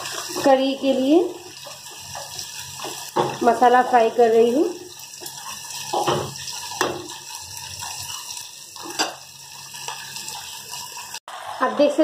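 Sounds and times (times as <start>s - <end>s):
masala paste sizzling in oil: 0.0s - 12.0s.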